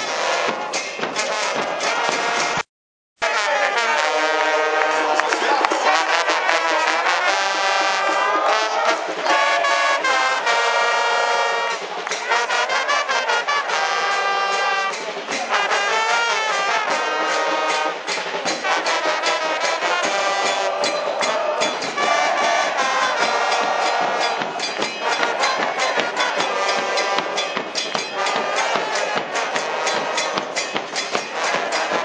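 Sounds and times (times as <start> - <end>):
brass band playing a chant: 0.0 - 32.0
rapid bass drum beats: 0.1 - 2.6, 13.7 - 32.0.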